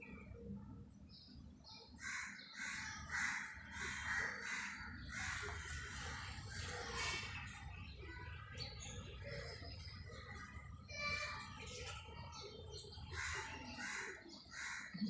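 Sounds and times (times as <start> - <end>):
crows cawing: 2.0 - 7.4, 13.1 - 15.0.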